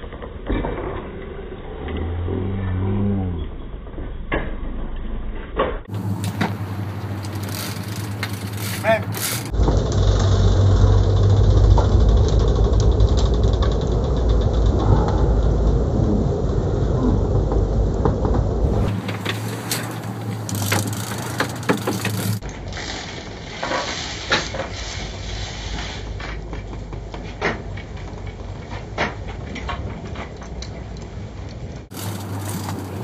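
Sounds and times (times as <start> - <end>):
boat engines rumbling: 5.9 - 22.4, 31.3 - 33.0
fishing reel and rod clicks: 7.1 - 9.6, 19.6 - 22.4
wind on microphone: 12.5 - 21.1.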